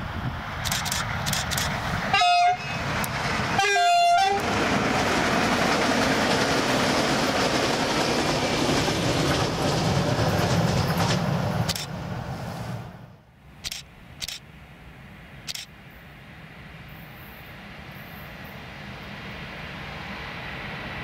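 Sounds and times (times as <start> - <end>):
train rumbling past: 0.0 - 21.0
train horn blasts: 2.1 - 2.9, 3.6 - 4.4.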